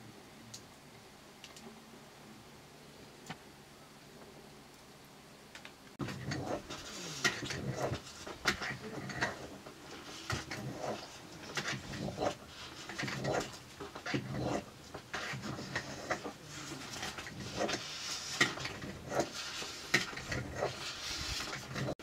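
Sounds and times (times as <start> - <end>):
metal spoon scraping a pan: 6.0 - 22.0.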